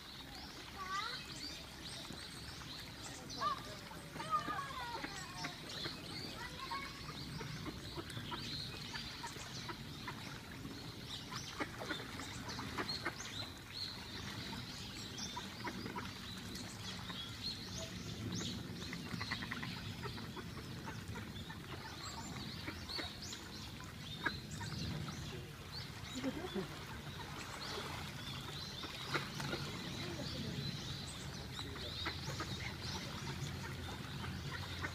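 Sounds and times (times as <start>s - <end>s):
ducks chattering: 26.0s - 34.9s.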